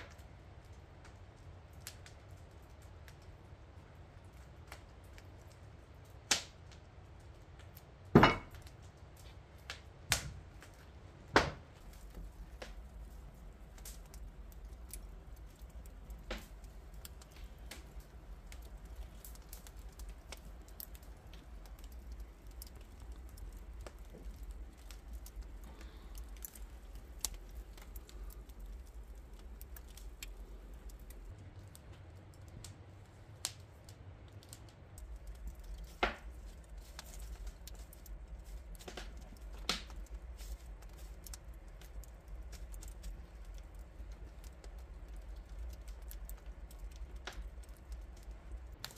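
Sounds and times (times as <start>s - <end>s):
wood fire crackling: 0.0s - 48.9s
low steady rumble: 9.9s - 48.9s.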